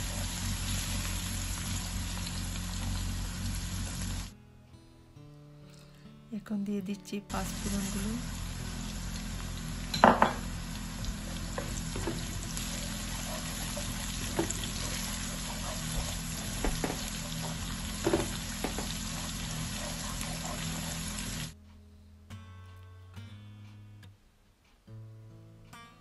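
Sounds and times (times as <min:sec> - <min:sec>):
spices sizzling in hot oil: 0:00.0 - 0:04.3, 0:07.3 - 0:21.6
wooden spoon knocking pan: 0:15.9 - 0:19.0.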